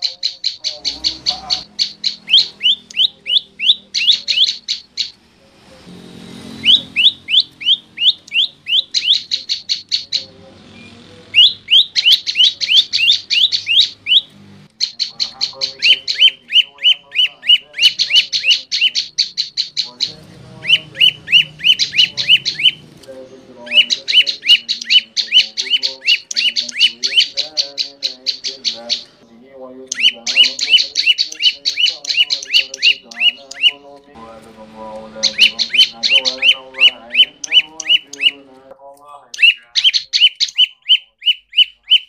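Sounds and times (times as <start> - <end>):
bird singing sharp repeated notes: 0.0 - 42.0.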